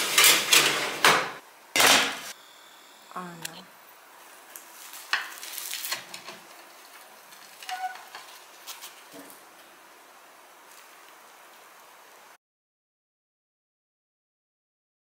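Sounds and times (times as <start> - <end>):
utensils and dishes clinking: 0.0 - 1.1
steady hiss: 1.4 - 12.4.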